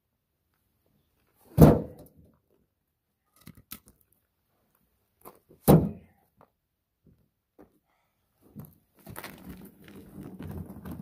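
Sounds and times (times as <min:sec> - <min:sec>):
logs thunking into wheelbarrow: 0:01.5 - 0:02.1, 0:05.6 - 0:06.1.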